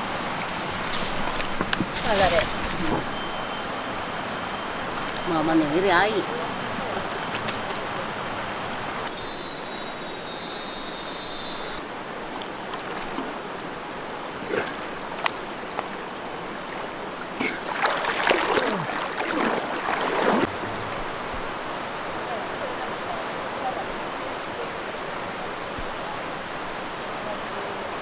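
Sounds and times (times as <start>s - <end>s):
people wading through water: 0.0s - 3.6s, 14.7s - 21.4s
river flowing: 0.0s - 9.6s, 11.8s - 28.0s.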